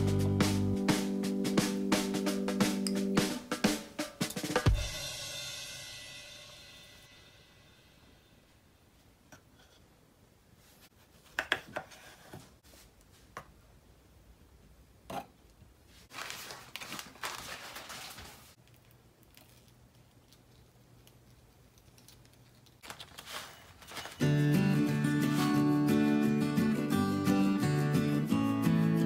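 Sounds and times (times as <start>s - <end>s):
plastic packet crinkling and tearing: 16.1s - 24.3s.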